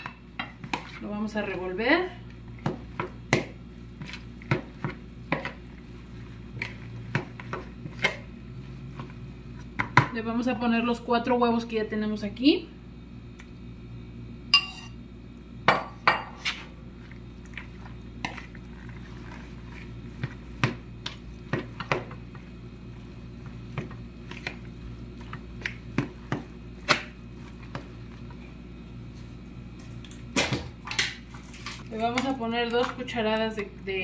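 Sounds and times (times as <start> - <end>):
fork scraping mixing bowl: 17.4 - 22.0.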